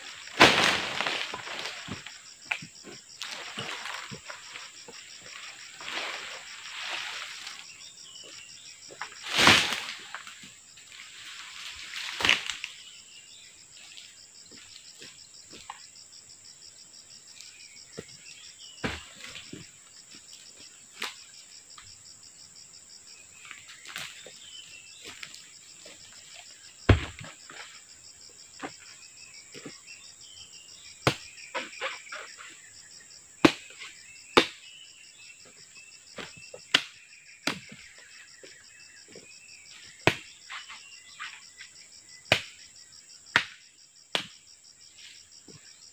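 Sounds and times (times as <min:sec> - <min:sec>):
high insect drone: 0:00.0 - 0:45.9
palm fronds rustling crashes: 0:00.1 - 0:02.2, 0:03.2 - 0:04.6, 0:05.2 - 0:07.6, 0:09.0 - 0:12.8
blade chopping fronds: 0:00.3 - 0:04.3, 0:09.0 - 0:10.2, 0:26.9 - 0:27.3, 0:36.2 - 0:37.8, 0:43.3 - 0:44.3.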